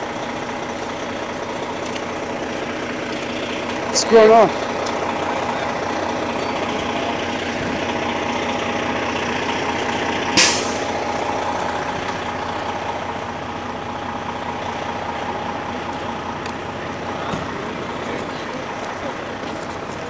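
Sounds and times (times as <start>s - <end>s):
fire engine idling: 0.0s - 20.0s
air brake hiss: 10.4s - 10.9s.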